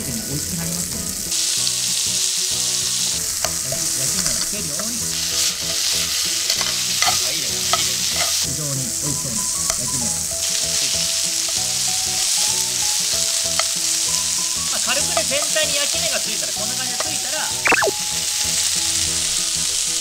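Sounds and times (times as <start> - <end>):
meat sizzling in a frying pan: 0.0 - 20.0
metal tongs clicking on pan: 6.4 - 8.4.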